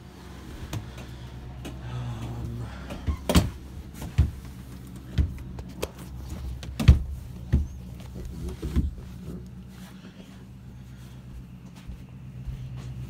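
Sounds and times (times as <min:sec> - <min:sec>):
low hum: 0:00.0 - 0:13.0
footsteps on hard floor: 0:03.1 - 0:10.5, 0:11.2 - 0:13.0.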